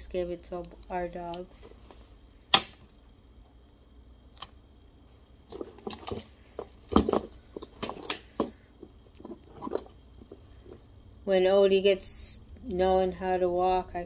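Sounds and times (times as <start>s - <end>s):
metal buckles clinking: 5.5s - 8.5s.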